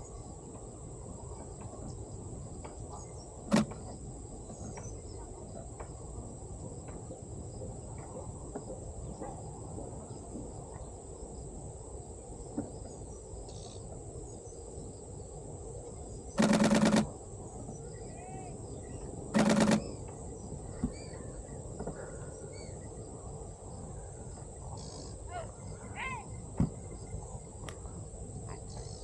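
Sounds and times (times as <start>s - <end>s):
outdoor background noise: 0.0s - 29.0s
camera shutter clicks: 3.5s - 3.8s, 16.4s - 17.1s, 19.4s - 19.9s
high insect trill: 22.5s - 29.0s.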